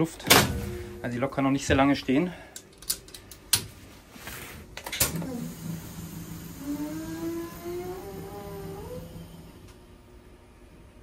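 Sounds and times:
electric hum: 0:00.0 - 0:11.0
motor whine rising in pitch: 0:05.2 - 0:10.1.

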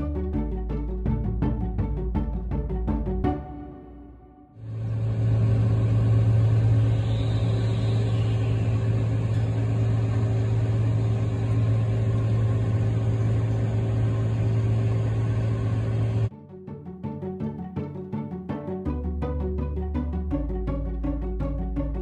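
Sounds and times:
heavy machinery engine running: 0:04.6 - 0:16.3.

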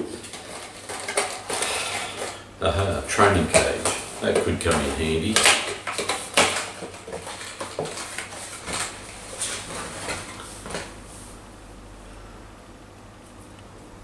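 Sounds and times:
handling cardboard box and plastic parts: 0:00.0 - 0:02.4, 0:03.0 - 0:11.0.

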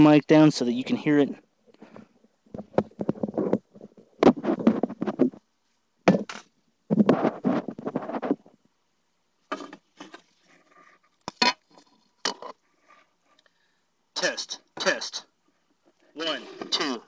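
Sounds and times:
microphone handling noise: 0:01.8 - 0:05.5, 0:06.9 - 0:08.6
hands scraping and knocking on wood: 0:02.5 - 0:05.4.

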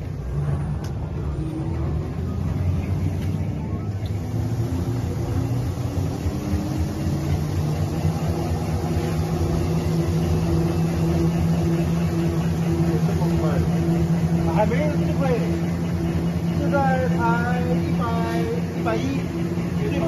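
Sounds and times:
paper rewinding machine humming: 0:01.9 - 0:20.0.

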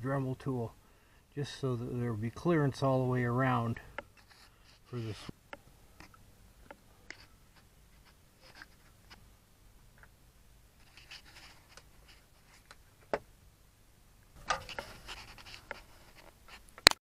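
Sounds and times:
clicking and scraping: 0:14.4 - 0:17.0.

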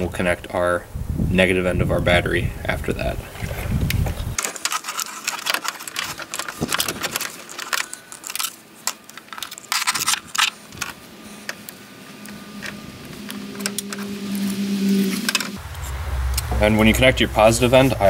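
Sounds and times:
wiring clicking and rattling: 0:03.9 - 0:15.6.

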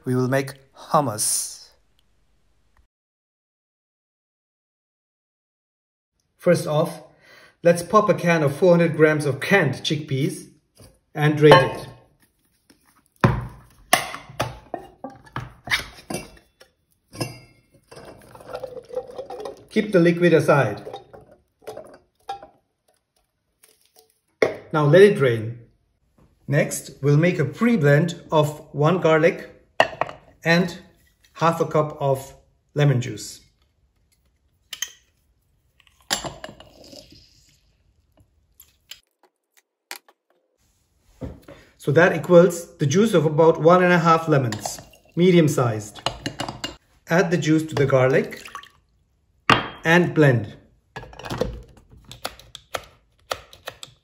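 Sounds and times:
wet squelch of lemon juice: 0:33.5 - 0:39.3.

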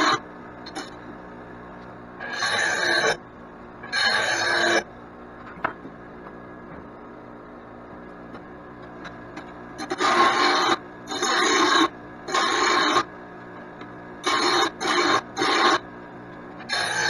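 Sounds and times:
arc welder bursts: 0:09.8 - 0:13.1, 0:14.2 - 0:15.9, 0:16.7 - 0:17.0.

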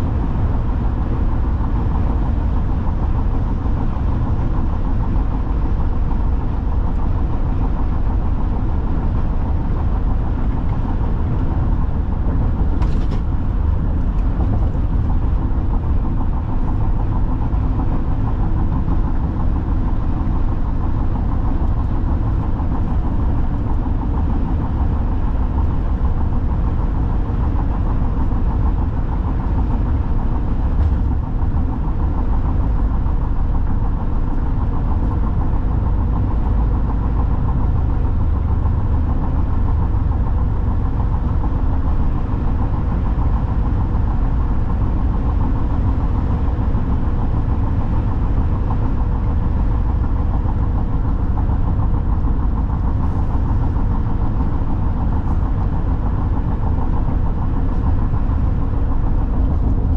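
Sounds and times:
car road noise from inside cabin: 0:00.0 - 0:59.9.

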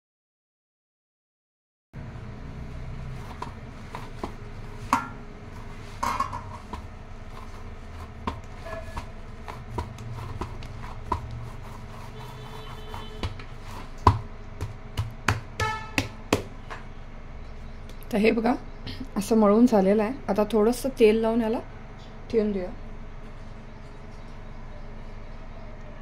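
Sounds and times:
dough thudding and slapping: 0:03.2 - 0:16.8.

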